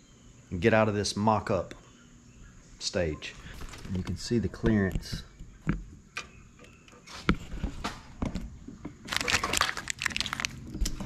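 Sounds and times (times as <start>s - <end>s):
plastic wiring loom crackling: 3.4s - 4.6s, 9.1s - 11.0s.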